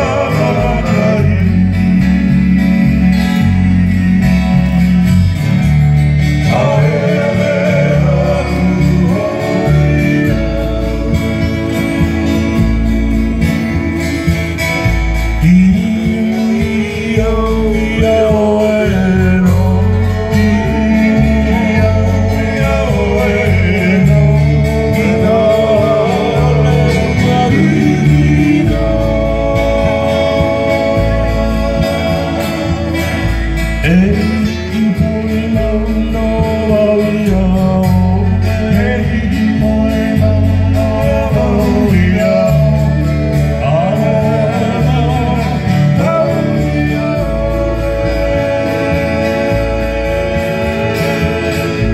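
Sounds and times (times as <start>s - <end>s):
bass: 0.0s - 51.9s
men singing: 0.0s - 51.9s
strummed acoustic guitar: 0.0s - 51.9s
twelve-string guitar: 0.0s - 51.9s.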